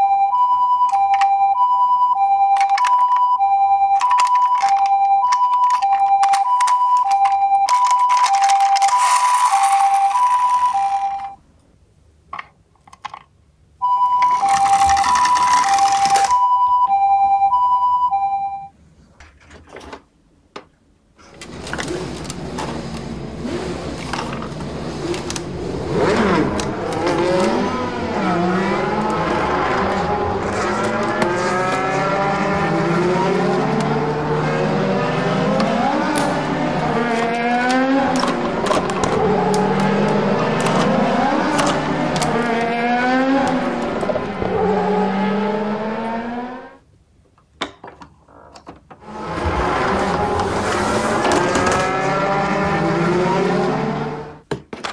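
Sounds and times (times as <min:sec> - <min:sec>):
toy two-tone siren: 0:00.0 - 0:11.4, 0:13.8 - 0:18.5
toy engine-revving sound effects: 0:07.7 - 0:11.3, 0:14.3 - 0:16.3, 0:21.4 - 0:46.6, 0:49.0 - 0:54.4.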